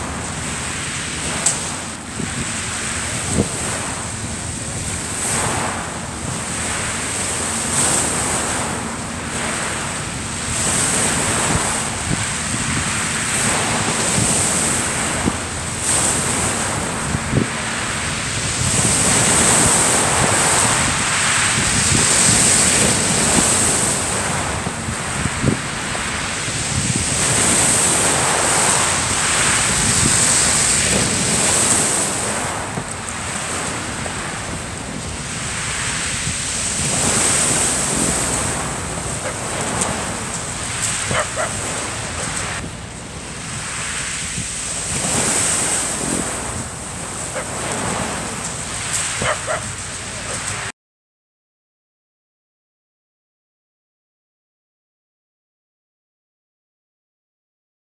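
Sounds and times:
waves washing over shingle: 0:00.0 - 0:50.7
wind buffeting microphone: 0:00.0 - 0:50.7.

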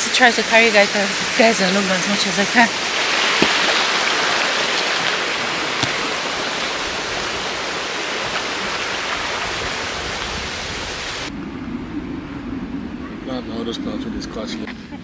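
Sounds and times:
rush of flowing water: 0:00.0 - 0:11.4.

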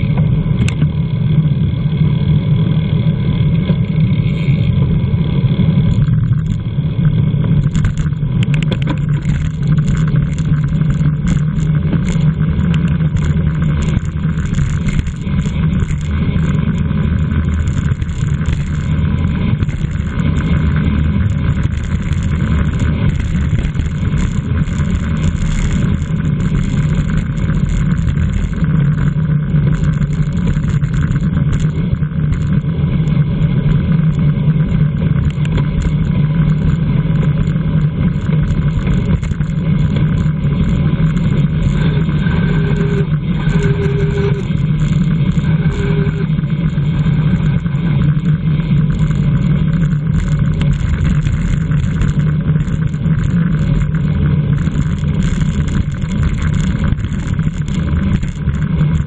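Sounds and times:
low hum: 0:00.0 - 0:59.0
wind and road noise: 0:00.0 - 0:59.0
short beeps: 0:42.2 - 0:44.5, 0:45.6 - 0:46.3.

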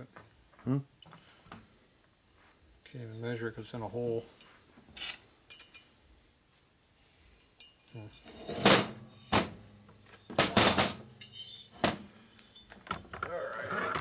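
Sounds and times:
metal clinks and knocks: 0:05.0 - 0:05.9, 0:07.4 - 0:13.2.

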